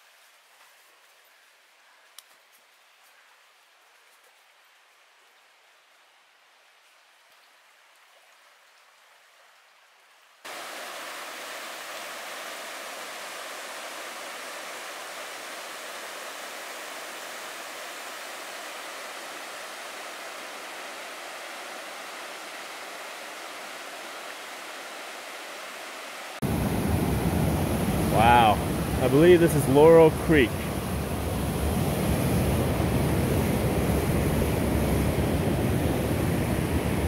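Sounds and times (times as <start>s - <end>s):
creek water rushing over rocks: 2.4s - 37.0s
faint hiss: 10.3s - 37.0s.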